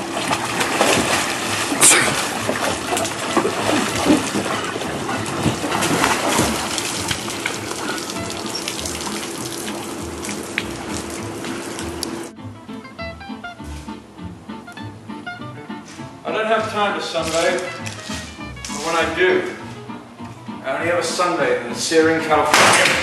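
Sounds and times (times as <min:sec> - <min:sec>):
person splashing in water: 0:00.0 - 0:12.3, 0:17.1 - 0:19.1
water streaming off person: 0:00.0 - 0:12.3, 0:16.6 - 0:19.3
hot tub jets churning water: 0:00.0 - 0:12.4, 0:16.3 - 0:23.0
steady hum: 0:00.0 - 0:17.0.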